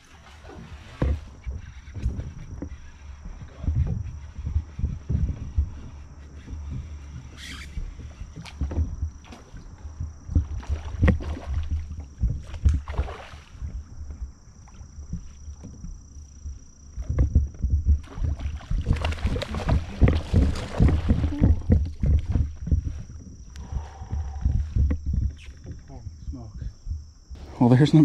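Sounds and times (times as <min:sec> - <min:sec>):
gear knocking on plastic kayak hull: 0:01.0 - 0:12.9, 0:15.0 - 0:26.0
fish thrashing and splashing: 0:08.2 - 0:13.8, 0:17.0 - 0:23.1.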